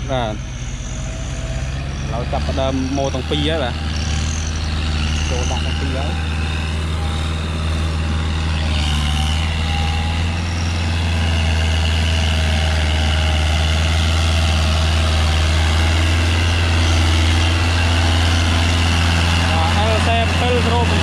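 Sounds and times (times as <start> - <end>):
tractor diesel engine running: 0.0 - 21.0.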